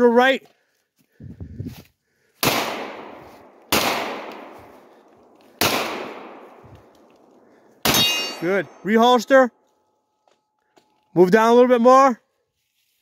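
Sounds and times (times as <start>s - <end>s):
pistol shots echoing: 2.4s - 8.8s.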